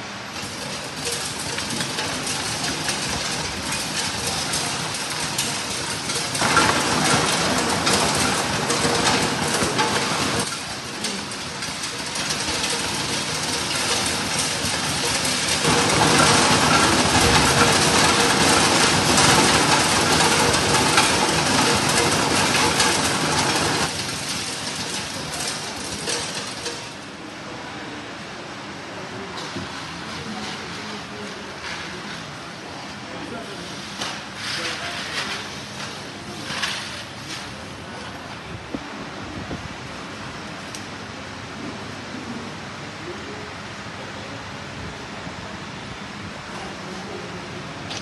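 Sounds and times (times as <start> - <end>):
sorting machine rattling: 0.0 - 27.3, 29.4 - 38.6.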